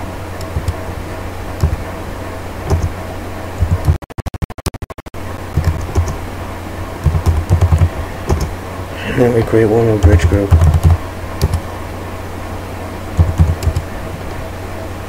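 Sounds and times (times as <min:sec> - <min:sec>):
steady electrical hum: 0:00.0 - 0:04.0, 0:05.2 - 0:15.0
keyboard typing: 0:00.4 - 0:00.8, 0:01.6 - 0:01.8, 0:02.7 - 0:02.9, 0:03.6 - 0:06.2, 0:07.0 - 0:08.5, 0:10.0 - 0:11.7, 0:13.2 - 0:13.9.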